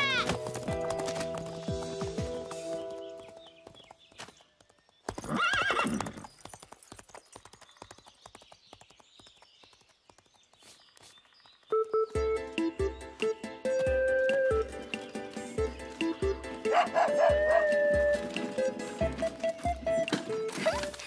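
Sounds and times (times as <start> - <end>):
music: 0.0 - 3.6, 11.7 - 21.0
hooves clip-clopping on road: 0.0 - 12.3, 13.7 - 21.0
pony whinnying: 5.3 - 6.2.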